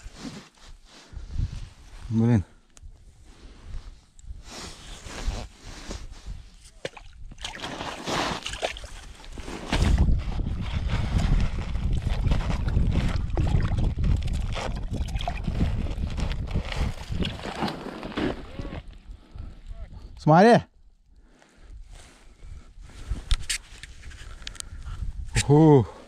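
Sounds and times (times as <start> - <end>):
crunching and scraping on snow: 0.0 - 2.4, 3.2 - 6.7, 7.5 - 13.3, 15.4 - 19.1
water sloshing and splashing: 6.8 - 10.0, 11.9 - 15.6
low rumble of rubbing: 9.0 - 19.3.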